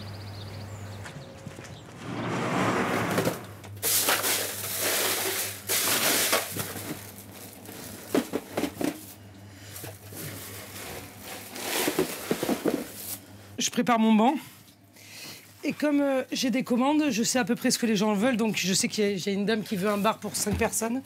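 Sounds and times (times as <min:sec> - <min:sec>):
plastic crates being shifted: 0:01.1 - 0:09.2, 0:09.8 - 0:13.2
ice and plastic sheeting crunching: 0:03.1 - 0:09.1.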